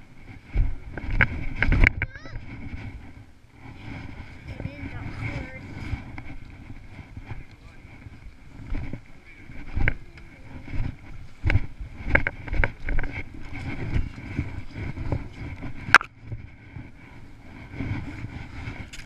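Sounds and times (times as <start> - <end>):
rumbling wind: 0.0 - 19.0
camera handling noise: 15.9 - 16.1.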